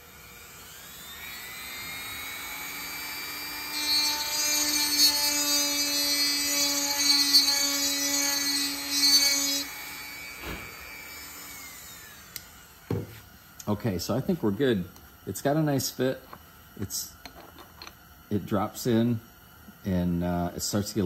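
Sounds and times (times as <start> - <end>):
rotary tool motor whine: 0.0 - 13.5.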